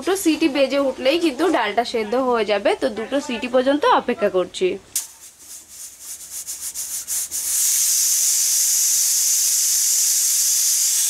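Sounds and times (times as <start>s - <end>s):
steam jet hissing: 5.0s - 11.0s
pressure cooker valve sputtering: 7.3s - 11.0s.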